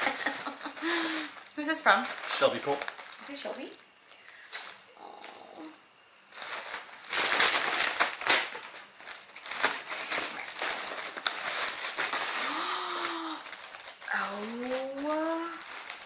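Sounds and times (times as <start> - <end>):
plastic packaging crinkling: 0.0 - 4.8, 6.2 - 16.0.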